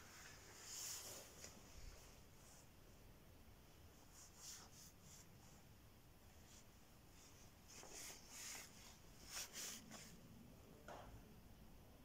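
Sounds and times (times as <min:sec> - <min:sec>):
soft scratchy rustles: 0:00.0 - 0:02.8, 0:03.9 - 0:05.7, 0:06.3 - 0:10.3.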